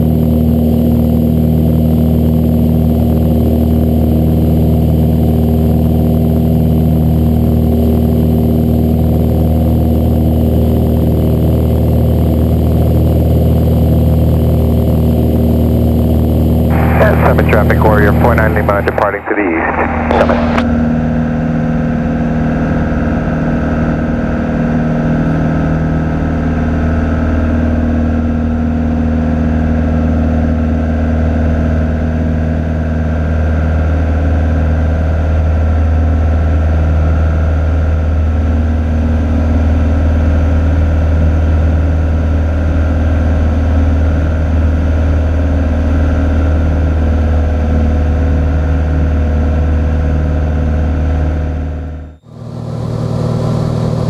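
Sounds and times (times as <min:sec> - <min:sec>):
airplane engine in cabin: 0:00.0 - 0:54.0.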